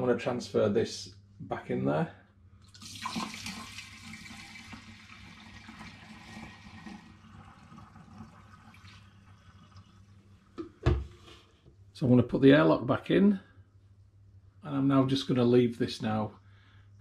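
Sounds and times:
liquid pouring and splashing: 0:02.6 - 0:10.6.

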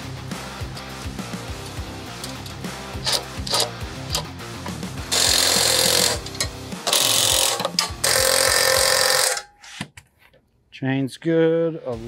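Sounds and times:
guitar music: 0:00.0 - 0:09.4
cordless power tool bursts: 0:05.1 - 0:09.5.

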